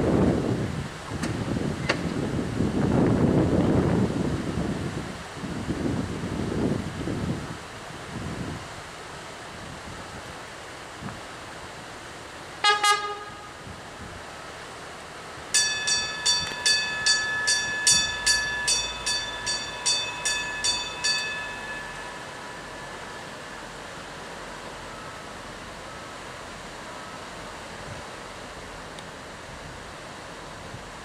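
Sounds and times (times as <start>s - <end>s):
train horn toots: 12.6s - 13.6s
bell ringing: 15.6s - 24.1s.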